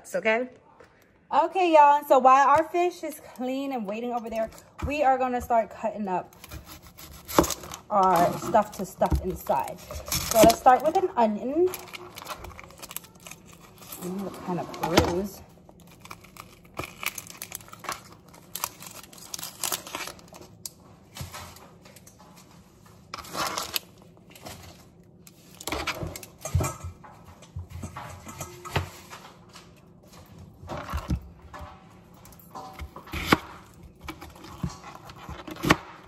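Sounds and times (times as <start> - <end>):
onion skin crinkling and tearing: 6.3 - 14.3, 15.5 - 22.1, 23.1 - 26.4, 32.6 - 36.0.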